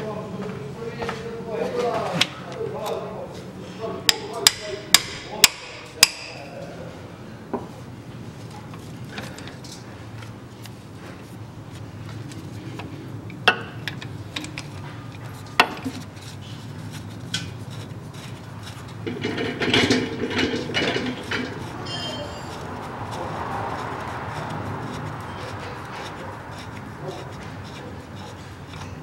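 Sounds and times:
metal clattering and scraping: 0:13.6 - 0:29.0.

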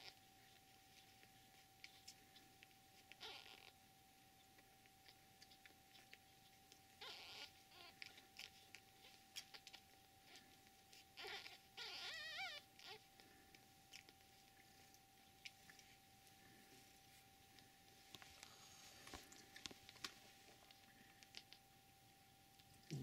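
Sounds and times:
faint steady whine: 0:00.0 - 0:23.0
kittens suckling rustles: 0:00.0 - 0:23.0
kittens squealing: 0:03.1 - 0:03.8, 0:07.0 - 0:13.1.

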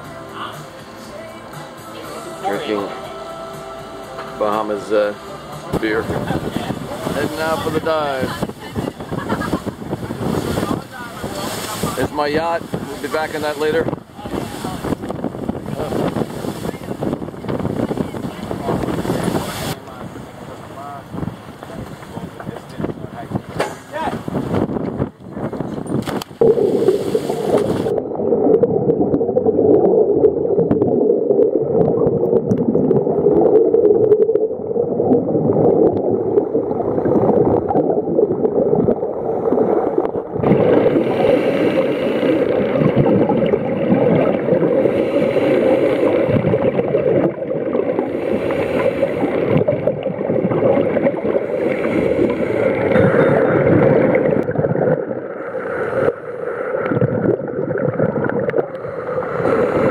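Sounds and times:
underwater exhaled bubbles: 0:24.5 - 0:59.9.

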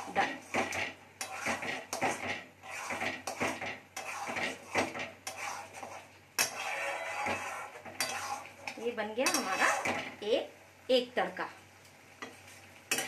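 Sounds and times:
spatula scraping metal pan: 0:00.0 - 0:10.2.

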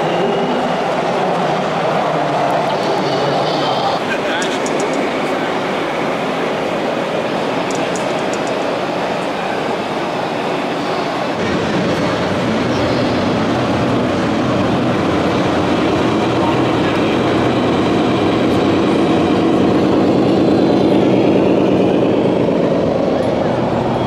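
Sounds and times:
crowd chatter: 0:00.0 - 0:24.0.

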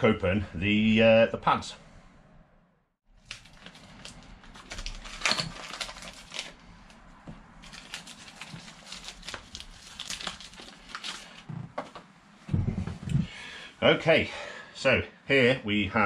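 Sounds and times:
cardboard box tearing and crinkling: 0:03.3 - 0:06.5, 0:07.6 - 0:11.2.

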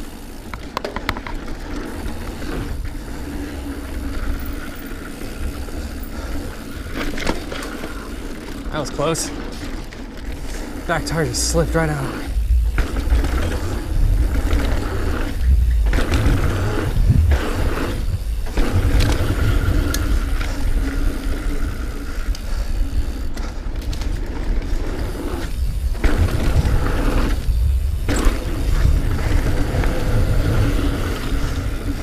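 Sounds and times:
bike rattling: 0:00.0 - 0:32.0
bike tyres rolling on dirt: 0:00.0 - 0:32.0
wind buffeting microphone: 0:12.3 - 0:21.0, 0:25.0 - 0:32.0.

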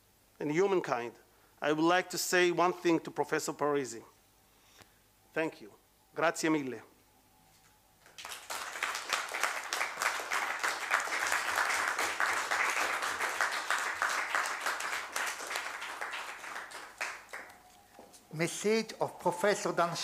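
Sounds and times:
small audience applauding: 0:08.0 - 0:20.0.

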